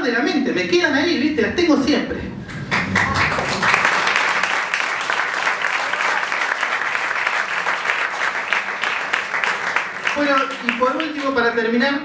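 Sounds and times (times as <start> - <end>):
audience applauding: 2.4 - 11.6.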